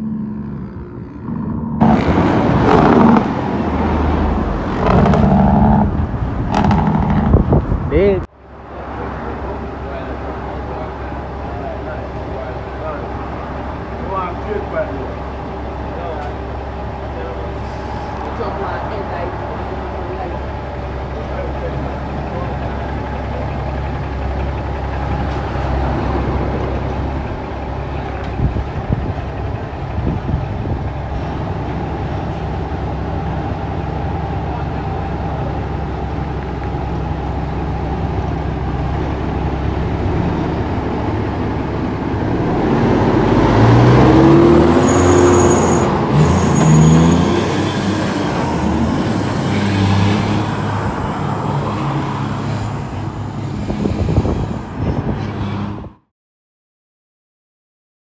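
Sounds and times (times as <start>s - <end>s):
truck diesel engine running: 8.8s - 44.7s
high squeal: 44.2s - 49.8s.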